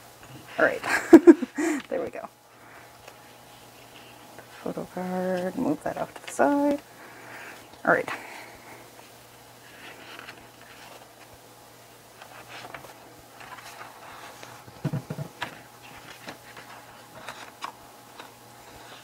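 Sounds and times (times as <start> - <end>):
paper pages rustling: 9.6 - 11.4, 12.1 - 19.0
dull thumps: 14.8 - 15.4.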